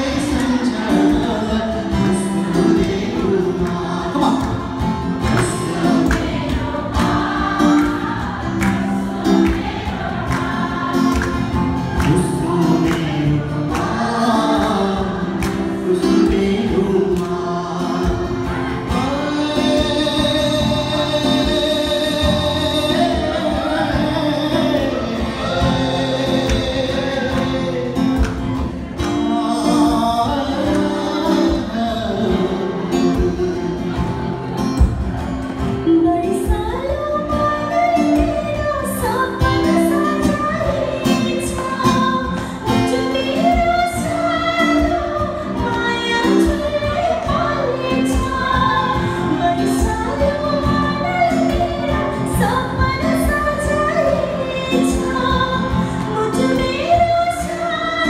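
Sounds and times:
strummed acoustic guitar: 0.0s - 58.0s
person singing: 10.1s - 34.8s.

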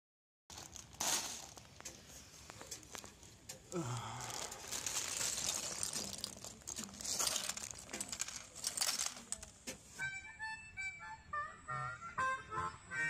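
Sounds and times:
plastic bag crinkling: 0.5s - 9.6s
plastic bricks rattling in a bag: 0.5s - 10.0s
harmonica music: 10.0s - 13.0s.

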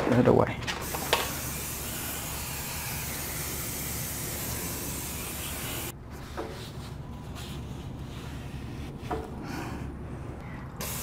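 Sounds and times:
cleaning spray hissing: 10.8s - 11.0s.

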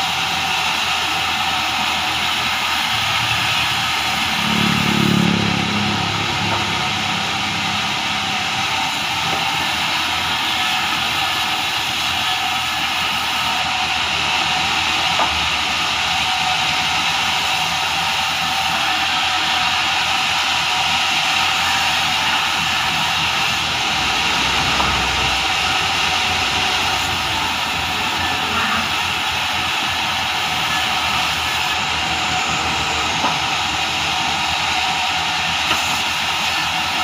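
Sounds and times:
band saw hissing and humming: 0.0s - 37.0s.

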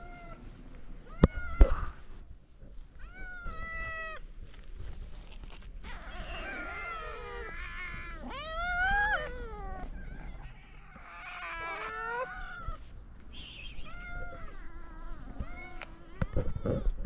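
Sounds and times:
young cats meowing: 2.9s - 4.6s, 5.5s - 12.9s, 13.7s - 17.0s.

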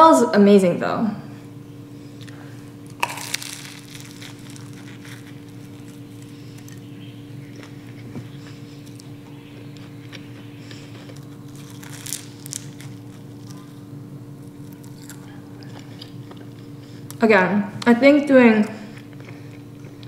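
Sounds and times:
low hum: 0.6s - 17.9s
faint chewing crunches: 1.9s - 17.2s, 18.7s - 20.0s
pastry crackling bite: 2.0s - 17.2s.

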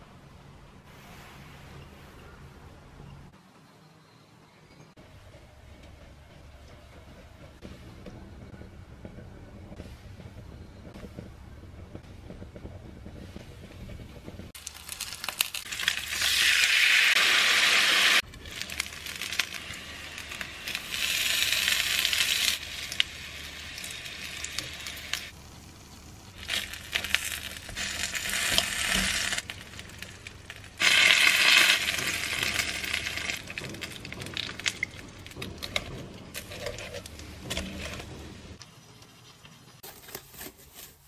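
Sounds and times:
dumplings sizzling in frying pan: 14.4s - 39.8s.

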